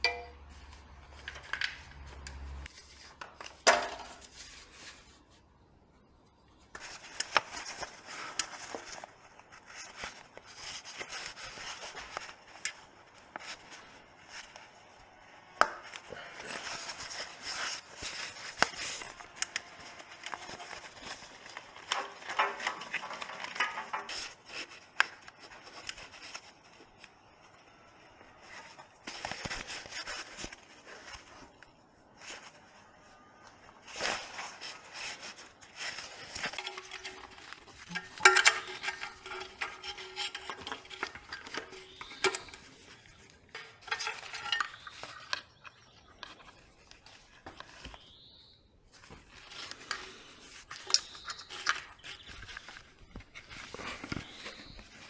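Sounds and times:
metal parts and tools knocking: 0.0 - 0.4, 36.5 - 42.6
rubbing and rustling: 0.4 - 5.6, 6.2 - 48.2, 48.8 - 55.0.

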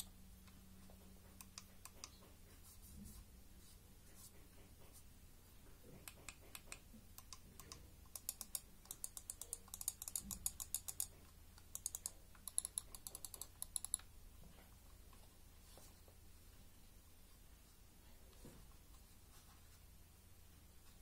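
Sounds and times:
mouse buttons clicking: 6.0 - 14.1.

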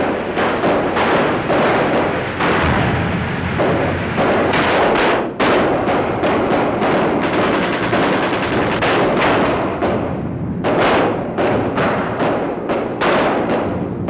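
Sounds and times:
rapid gunfire: 0.0 - 13.9
film score drums: 1.4 - 12.0.

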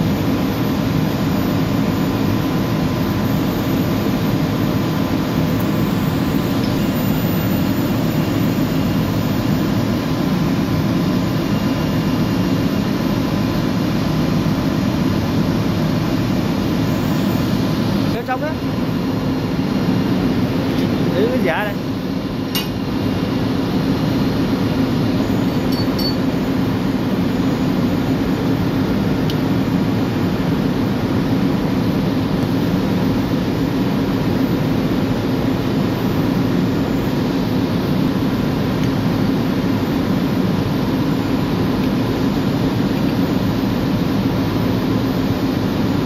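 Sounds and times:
machinery droning: 0.0 - 37.3
faint metallic clinks: 22.5 - 22.8, 25.7 - 26.2.

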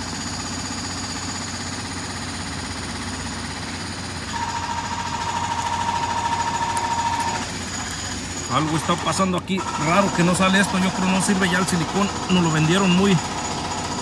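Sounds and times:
machine rattling: 4.3 - 14.0
steady whine: 4.3 - 14.0.

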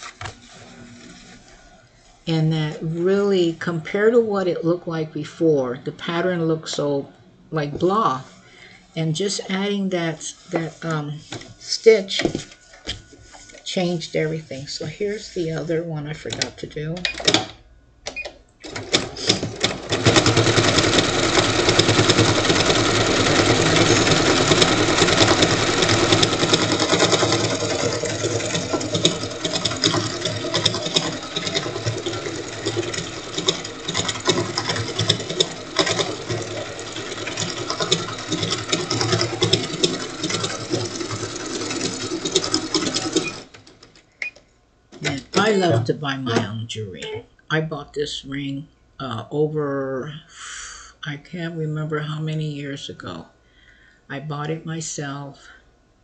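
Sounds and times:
sewing machine stitching: 18.6 - 44.0.

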